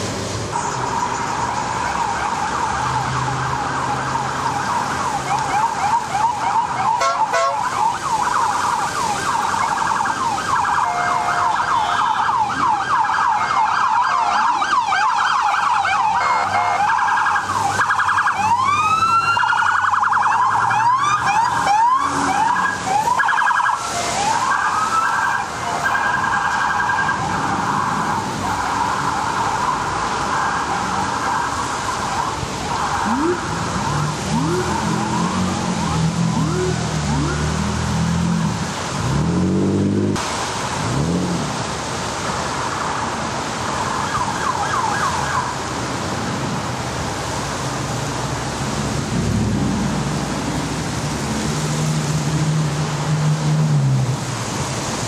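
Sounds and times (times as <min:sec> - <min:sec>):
police sirens yelping: 0:00.5 - 0:39.3, 0:40.2 - 0:49.1.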